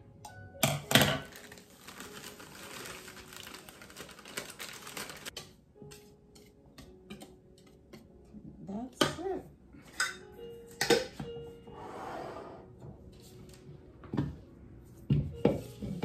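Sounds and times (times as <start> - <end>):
plastic bag crinkling: 1.2 - 5.3.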